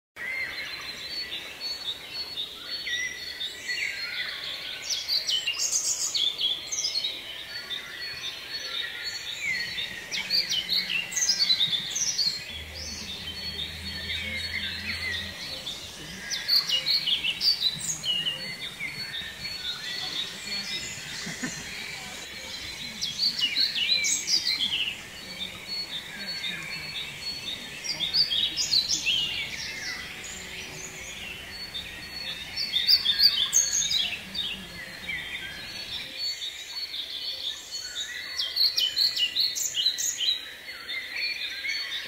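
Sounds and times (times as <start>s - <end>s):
songbirds chirping: 0.2s - 42.0s
thin steady high tone: 9.2s - 36.2s.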